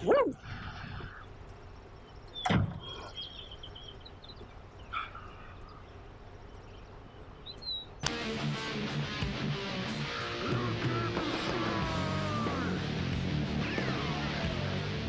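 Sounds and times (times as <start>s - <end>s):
faint high chirps: 0.3s - 8.1s.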